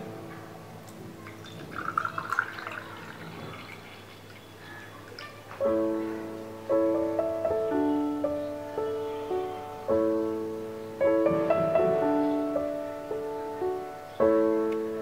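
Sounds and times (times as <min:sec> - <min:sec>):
piano music: 0:00.0 - 0:15.0
drink pouring into glass: 0:01.2 - 0:05.3.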